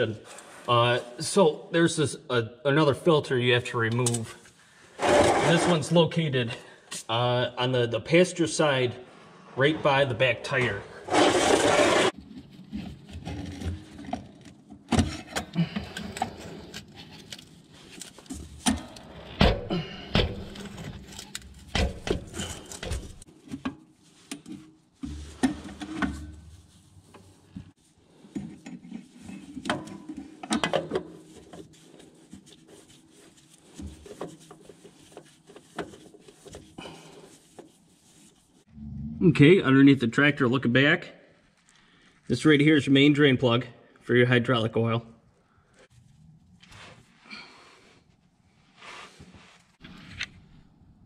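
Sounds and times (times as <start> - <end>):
rubbing: 5.0 - 5.9, 11.0 - 12.2, 31.2 - 38.7.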